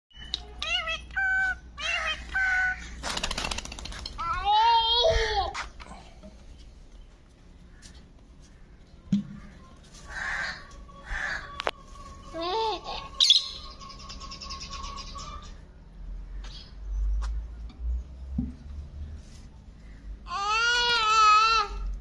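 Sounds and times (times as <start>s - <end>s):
parakeet chirping and trilling: 0.1s - 3.0s, 12.9s - 15.6s.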